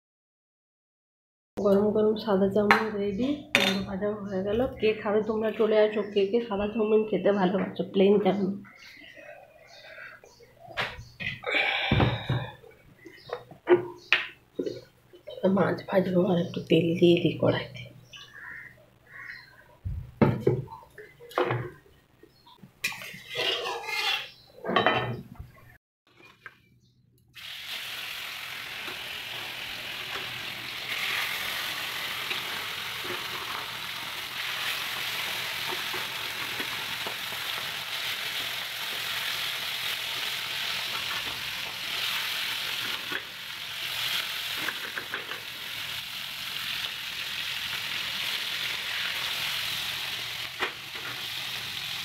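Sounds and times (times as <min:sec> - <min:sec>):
fish sizzling in hot oil: 0:27.4 - 0:52.0.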